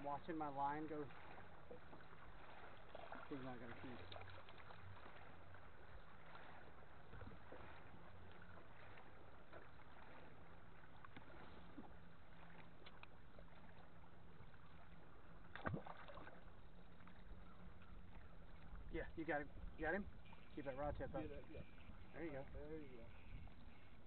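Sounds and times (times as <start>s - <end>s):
low steady hum: 0.0s - 24.0s
water lapping against hull: 0.0s - 24.0s
light ticks: 12.7s - 13.2s.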